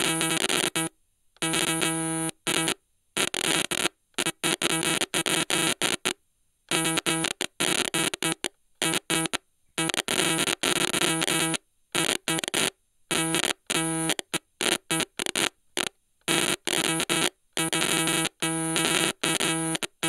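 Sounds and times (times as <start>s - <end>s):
buzzy electronic tone stuttering: 16.8s - 19.8s.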